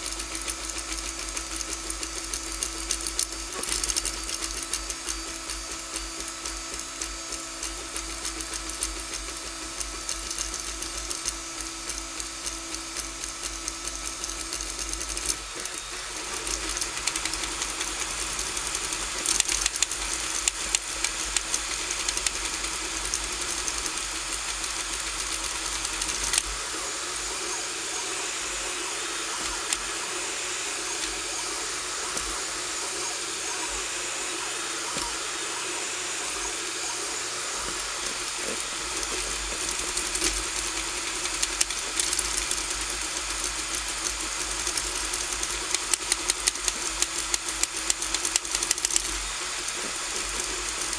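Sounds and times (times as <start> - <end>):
fan hiss: 0.0 - 50.9
stepper motors buzzing and whirring: 0.0 - 50.9.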